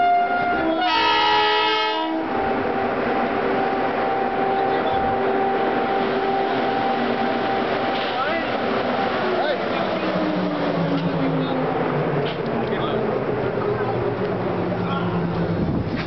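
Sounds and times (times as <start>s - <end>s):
train horn chord: 0.0s - 9.1s
locomotive blowers humming: 0.0s - 16.0s.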